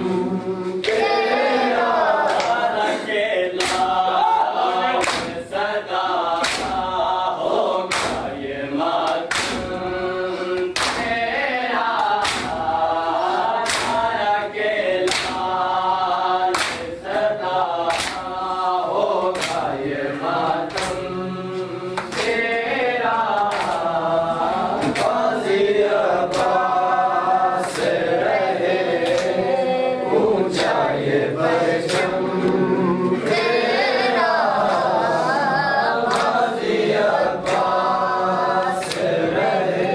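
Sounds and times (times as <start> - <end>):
men chanting in unison: 0.0 - 39.9
hands slapping chests: 2.2 - 2.7, 3.6 - 4.0, 5.0 - 5.4, 6.3 - 6.9, 7.9 - 8.4, 9.0 - 9.8, 10.5 - 11.2, 12.0 - 12.8, 13.5 - 14.1, 15.0 - 15.5, 16.5 - 18.4, 19.2 - 19.9, 20.7 - 21.1, 22.0 - 22.5, 23.3 - 23.9, 24.8 - 25.2, 26.2 - 26.8, 31.8 - 32.6, 36.1 - 36.4, 37.4 - 37.8, 38.8 - 39.2.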